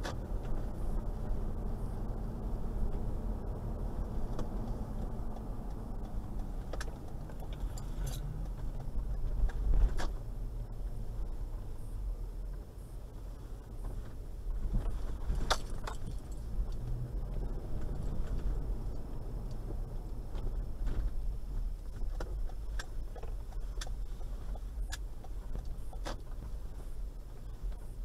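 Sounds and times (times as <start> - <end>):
car engine low rumble: 0.0 - 28.0
sharp clicks and light rattles: 3.9 - 10.3, 13.7 - 28.0.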